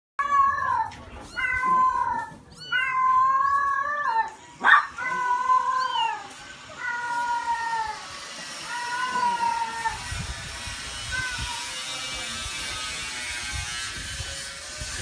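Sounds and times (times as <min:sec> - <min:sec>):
kittens mewing: 0:00.2 - 0:11.8.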